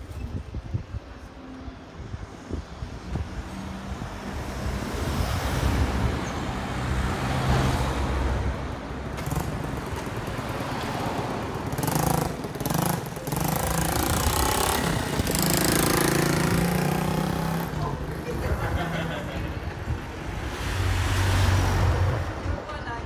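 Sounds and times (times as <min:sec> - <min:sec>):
street noise: 0:00.0 - 0:23.0
vehicle engine humming: 0:01.5 - 0:22.6.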